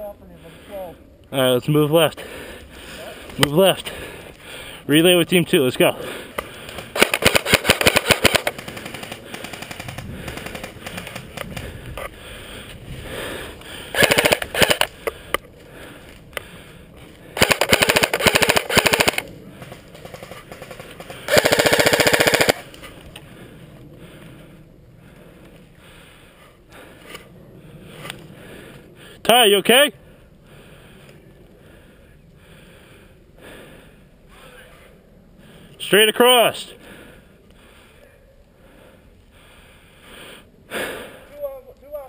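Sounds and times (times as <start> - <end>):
airsoft rifle full-auto bursts: 6.8 - 11.6, 13.9 - 15.0, 17.4 - 22.7.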